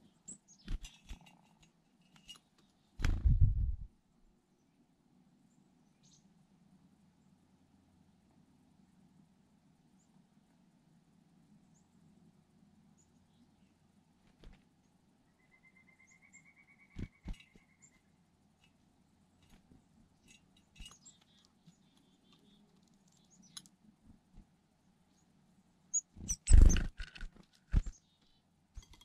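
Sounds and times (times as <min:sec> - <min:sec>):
bird pecking seeds: 0:19.4 - 0:24.5, 0:25.9 - 0:29.0
sharp knocks and scrabbling: 0:26.2 - 0:27.9.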